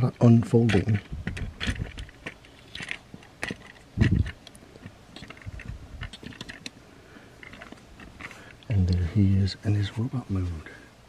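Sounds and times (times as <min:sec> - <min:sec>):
plastic toy parts clicking: 0:00.6 - 0:06.8.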